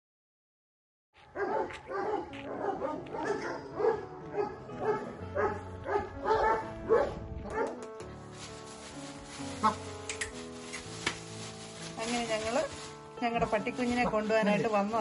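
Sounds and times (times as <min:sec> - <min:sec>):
background music: 0:01.2 - 0:15.0
dog barking: 0:01.4 - 0:07.7.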